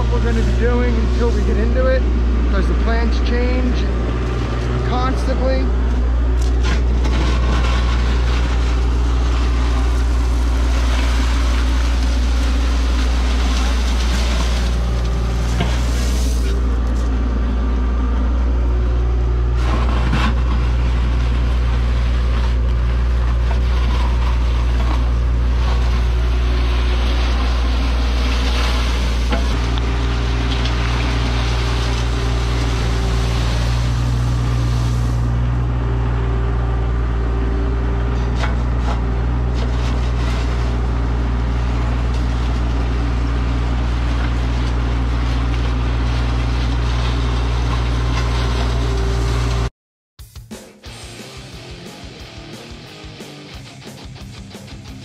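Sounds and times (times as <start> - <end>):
bucket scraping through gravel: 0.0 - 2.0, 6.5 - 17.1, 19.6 - 35.3
bucket and arm clunks: 0.0 - 17.3, 19.5 - 35.7, 37.8 - 49.7
excavator diesel engine running: 0.0 - 49.7, 50.9 - 55.0.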